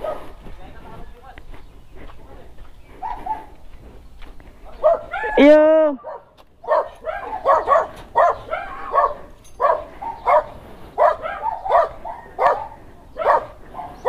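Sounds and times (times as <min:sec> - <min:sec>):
dog barking: 0:00.0 - 0:00.4, 0:03.0 - 0:03.6, 0:04.7 - 0:14.0.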